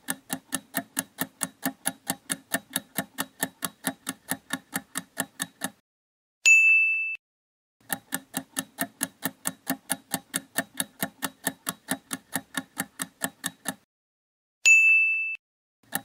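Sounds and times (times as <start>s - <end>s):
countdown timer ticking: 0.0s - 5.8s, 7.8s - 13.8s
short ringing chime: 6.5s - 7.2s, 14.7s - 15.4s.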